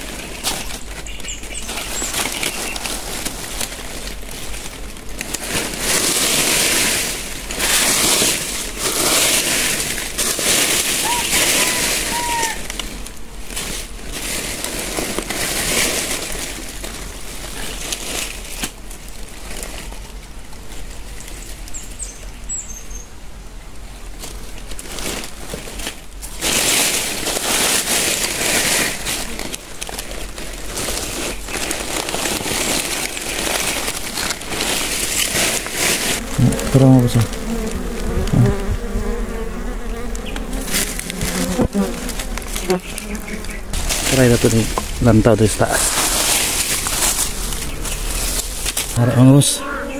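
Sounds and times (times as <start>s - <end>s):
hands scraping soil and leaves: 0.0s - 22.8s, 24.0s - 49.9s
faint bird chirps: 21.7s - 23.1s.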